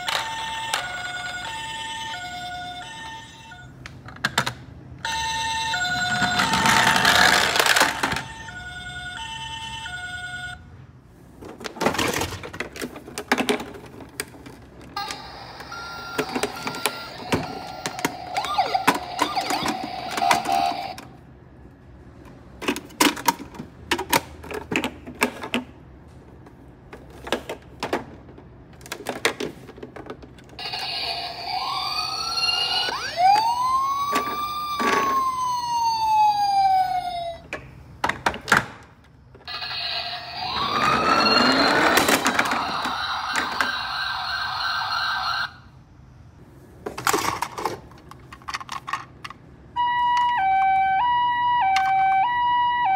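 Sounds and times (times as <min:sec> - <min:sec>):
toy electronic siren wailing: 0:00.0 - 0:03.8, 0:05.0 - 0:10.6, 0:15.0 - 0:21.0, 0:30.6 - 0:37.4, 0:39.5 - 0:45.7, 0:49.8 - 0:52.9
plastic toys clicking and knocking: 0:00.0 - 0:08.5, 0:11.4 - 0:21.2, 0:22.6 - 0:25.8, 0:26.9 - 0:30.6, 0:32.0 - 0:35.7, 0:40.4 - 0:43.8, 0:46.8 - 0:49.5
toy electronic tones: 0:15.0 - 0:21.0, 0:30.6 - 0:35.3, 0:39.5 - 0:45.7.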